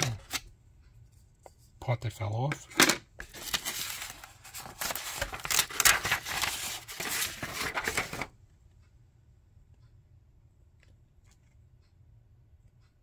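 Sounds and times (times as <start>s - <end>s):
paper rustling and crackling: 3.2s - 8.3s.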